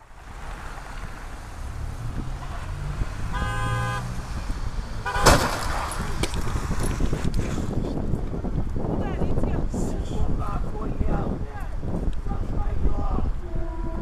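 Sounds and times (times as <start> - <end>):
street traffic rumble: 0.0 - 14.0
car horn: 2.3 - 4.2, 5.0 - 5.5, 13.4 - 14.0
car collision crash: 5.1 - 6.3.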